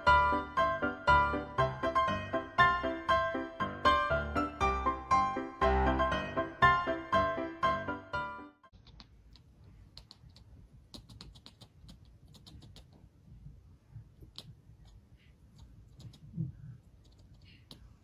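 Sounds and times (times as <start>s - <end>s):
piano music: 0.0s - 8.7s
kitten chattering clicks: 8.8s - 13.0s, 14.2s - 15.0s, 15.6s - 18.0s.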